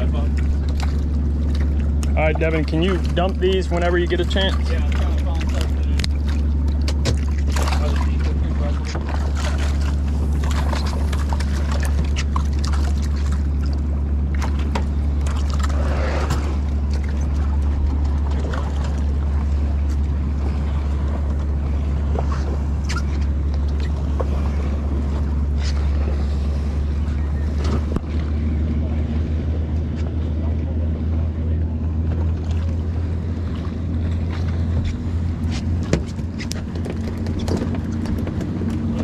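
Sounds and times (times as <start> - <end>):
boat engine idling: 0.0 - 39.0.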